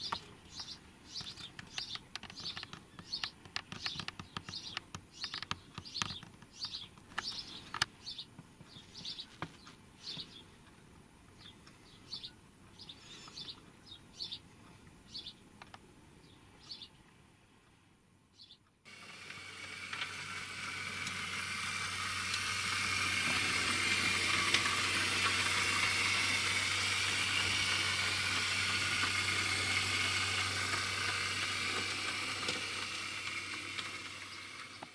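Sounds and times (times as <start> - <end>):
birds chirping: 0.0 - 17.2, 18.3 - 18.8
clicks: 1.1 - 8.5
model train running: 18.9 - 34.9.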